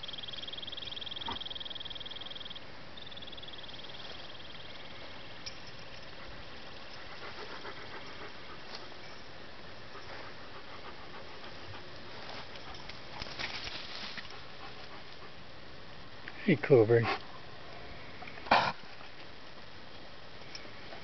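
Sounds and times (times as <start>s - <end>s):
steady background hiss: 0.0s - 21.0s
dog panting: 6.1s - 9.2s, 9.8s - 13.2s, 14.2s - 15.4s.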